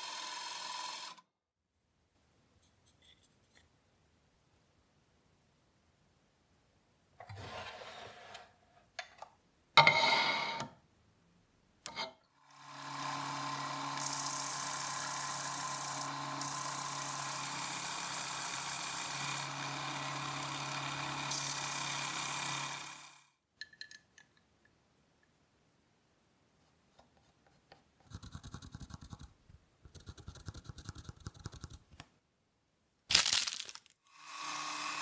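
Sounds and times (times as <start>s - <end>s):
belt sander running: 12.6s - 23.2s.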